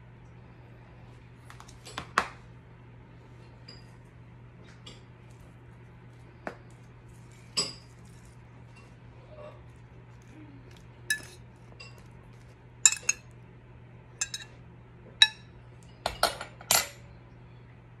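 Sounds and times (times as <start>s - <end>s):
fork clinking on ceramic plate: 11.1s - 12.1s, 12.9s - 13.3s, 14.2s - 14.6s, 15.2s - 15.5s.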